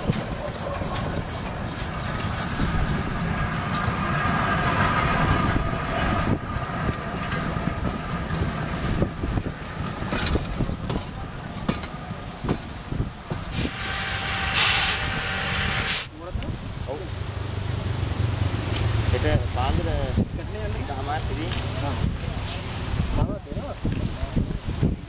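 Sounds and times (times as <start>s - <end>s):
train wheels clattering: 0.0s - 15.9s
road traffic: 0.0s - 25.0s.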